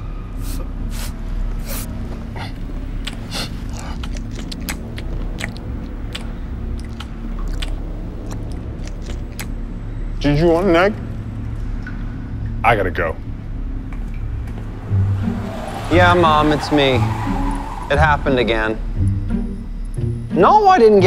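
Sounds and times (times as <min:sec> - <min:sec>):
man chewing egg: 0:00.9 - 0:09.6.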